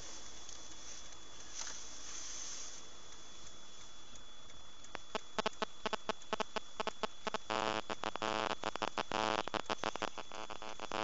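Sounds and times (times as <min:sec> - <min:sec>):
microphone hiss: 0:00.0 - 0:11.0
thin high whine: 0:00.0 - 0:11.0
sharp irregular clicks: 0:03.1 - 0:11.0.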